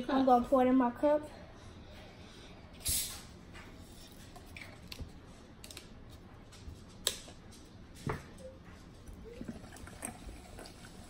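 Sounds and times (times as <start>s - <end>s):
bottle opening rush of air: 2.8s - 3.3s.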